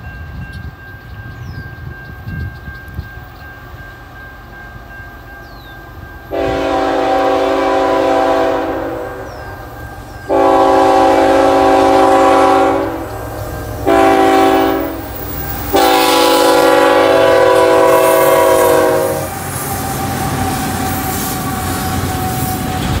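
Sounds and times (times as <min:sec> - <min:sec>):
train rumble and wheel clatter: 0:00.0 - 0:23.0
train air horn blasts: 0:06.3 - 0:09.6, 0:10.3 - 0:22.6.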